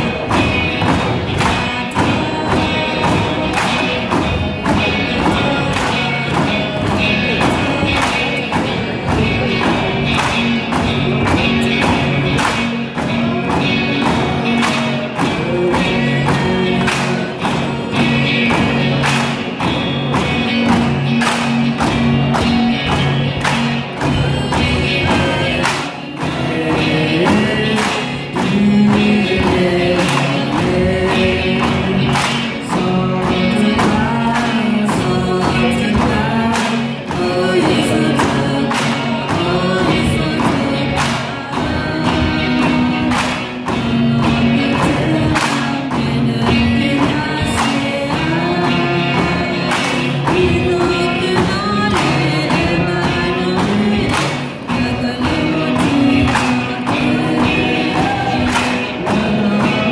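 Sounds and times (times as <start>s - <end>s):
group singing with music: 0.0s - 59.9s.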